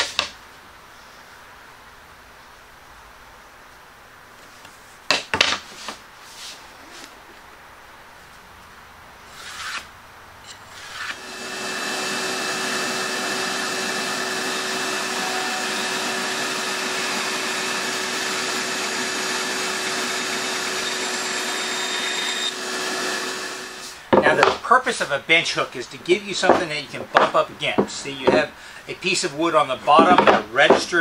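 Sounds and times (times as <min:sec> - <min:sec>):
band saw cutting plywood: 0:10.7 - 0:24.6
scrapes and knocks: 0:26.4 - 0:28.5, 0:29.8 - 0:31.0.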